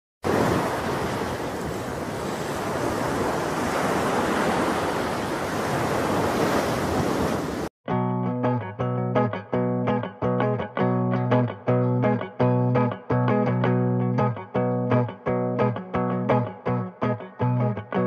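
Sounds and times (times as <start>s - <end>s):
plucked guitar music: 7.9s - 18.0s.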